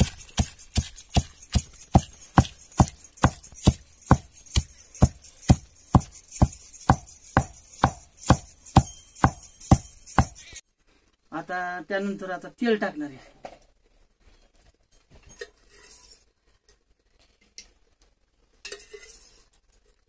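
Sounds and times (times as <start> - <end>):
pestle pounding in steel pot: 0.0 - 10.6.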